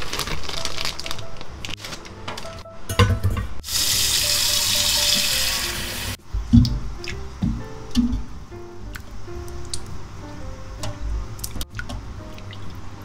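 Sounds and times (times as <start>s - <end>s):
plastic bag crinkling: 0.0s - 2.6s.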